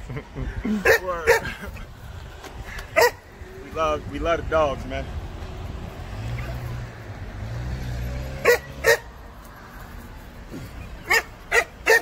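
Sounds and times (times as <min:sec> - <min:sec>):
dog barking: 0:00.8 - 0:01.5, 0:03.0 - 0:03.2, 0:08.4 - 0:09.1, 0:11.0 - 0:12.0.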